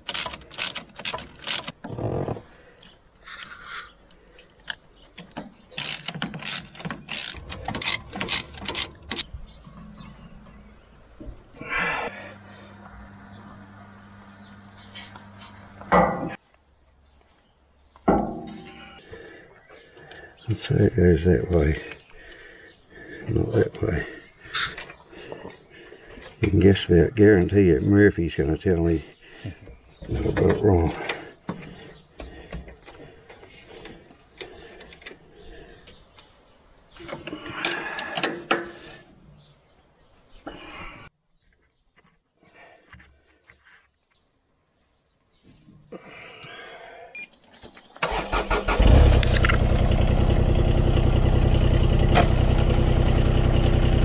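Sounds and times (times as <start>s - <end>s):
spanner clicking on metal fittings: 0.0s - 1.8s, 5.7s - 9.2s
low machine hum: 11.6s - 15.9s.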